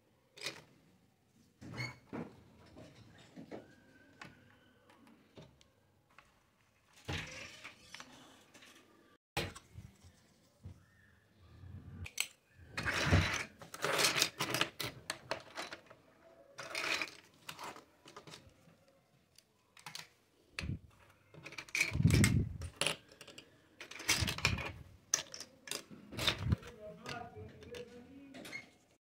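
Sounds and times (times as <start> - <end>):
plastic toy pieces clattering: 12.1 - 16.0, 16.6 - 18.6, 19.8 - 28.0.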